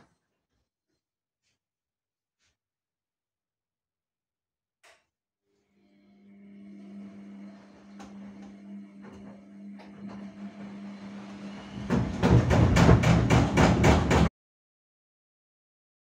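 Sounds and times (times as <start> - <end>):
washing machine motor hum: 5.6 - 14.3
washing machine rhythmic rumble: 6.2 - 14.3.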